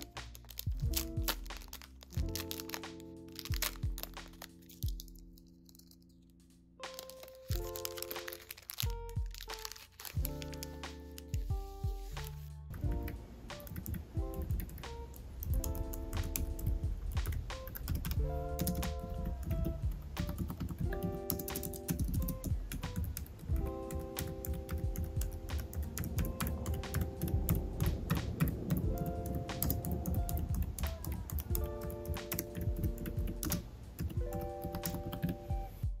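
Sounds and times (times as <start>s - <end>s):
gentle background music: 0.0s - 36.0s
keyboard typing clacks: 12.8s - 35.6s.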